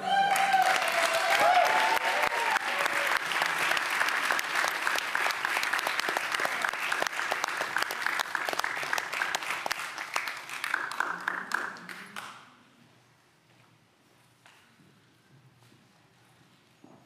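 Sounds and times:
crowd applauding: 0.0 - 12.4.

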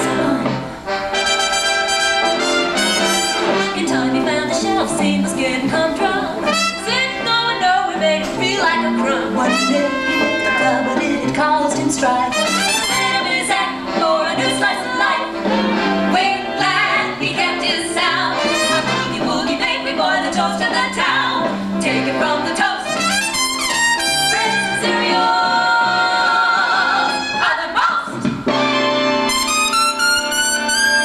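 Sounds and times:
people singing: 0.0 - 0.7, 3.6 - 23.1, 24.2 - 28.2
big band boogie-woogie music: 0.0 - 31.0.

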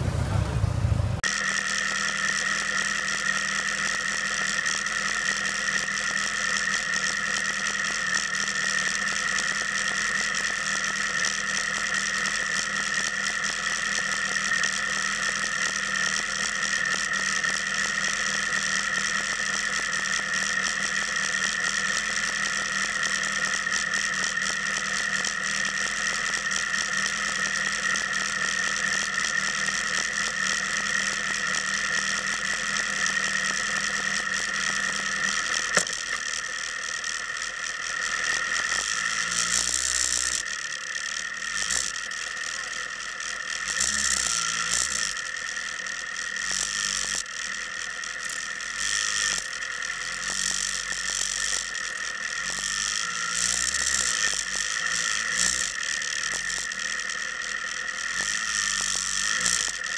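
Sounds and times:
motorcycle engine idling: 0.0 - 1.2
mechanical rattle: 1.2 - 59.9
sharp click: 35.2 - 36.2.

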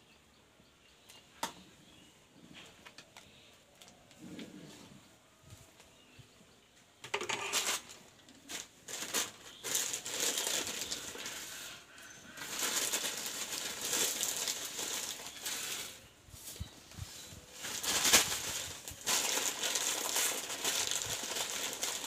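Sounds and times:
plastic packet crinkling: 7.2 - 16.0, 17.6 - 22.0
dry noodles breaking: 12.4 - 15.5, 17.8 - 22.0.

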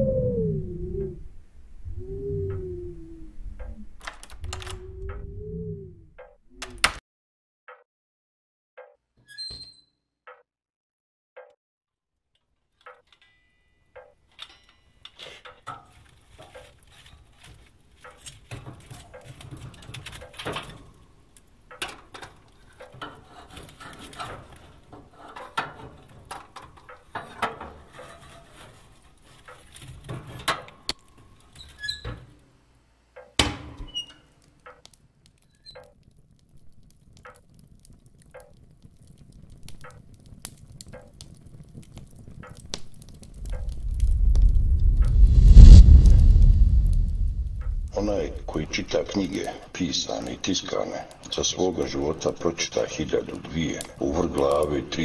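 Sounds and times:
low rumble: 0.0 - 6.2, 43.3 - 49.7
dense crackling and pattering: 15.5 - 21.1, 34.8 - 55.0.

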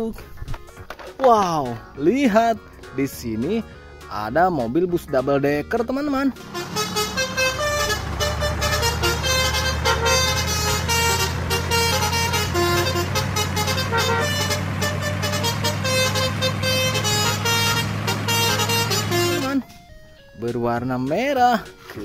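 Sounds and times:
engine low drone: 6.4 - 19.6.

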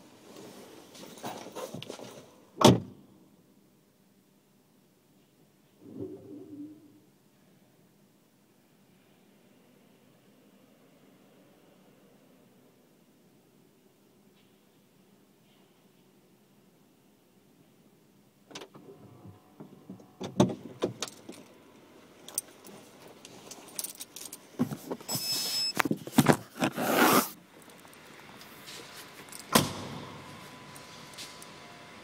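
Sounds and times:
keys jangling: 23.3 - 24.5.

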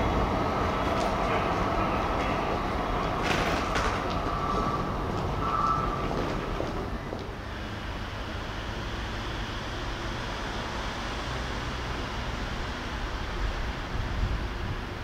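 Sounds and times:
steady rushing rumble: 0.0 - 15.0
wind on microphone: 13.4 - 15.0.

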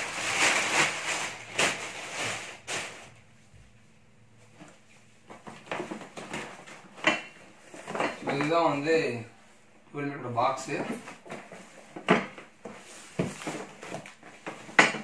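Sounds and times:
plastic bag rustling: 0.0 - 3.4.

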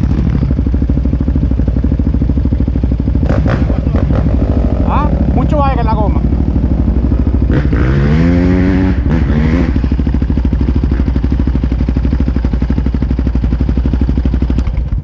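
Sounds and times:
atv engine idling: 0.0 - 15.0
person speaking: 4.8 - 6.3.

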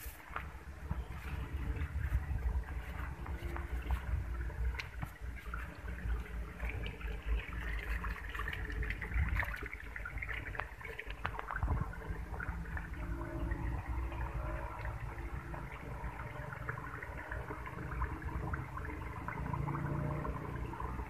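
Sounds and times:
wind buffeting microphone: 0.2 - 16.2.

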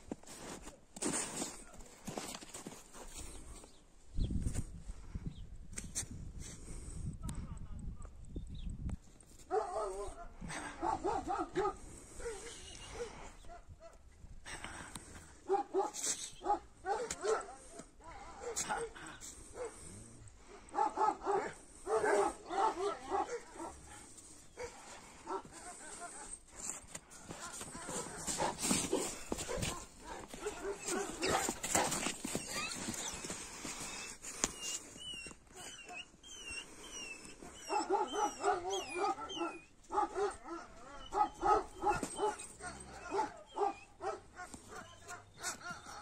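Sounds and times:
dogs barking and yelping: 9.5 - 14.0, 15.4 - 19.9, 20.5 - 46.0.

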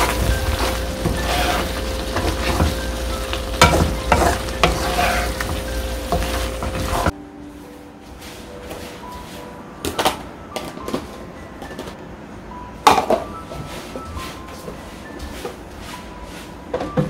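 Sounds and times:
cookware knocking and clattering: 3.6 - 7.1.

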